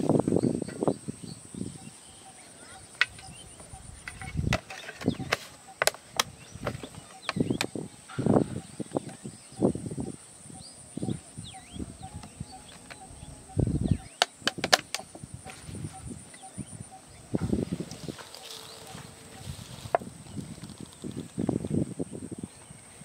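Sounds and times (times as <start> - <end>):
high insect trill: 0.0 - 23.0
faint bird chirps: 0.1 - 14.3
plastic containers clicking: 14.2 - 15.1.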